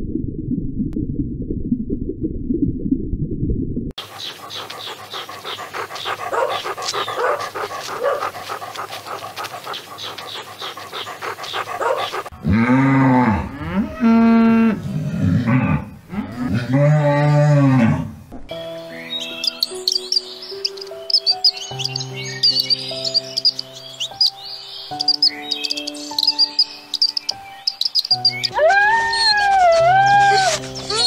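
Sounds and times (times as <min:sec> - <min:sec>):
dog panting: 0:04.0 - 0:12.4, 0:19.5 - 0:24.3, 0:25.0 - 0:28.3
cow mooing: 0:11.8 - 0:18.2.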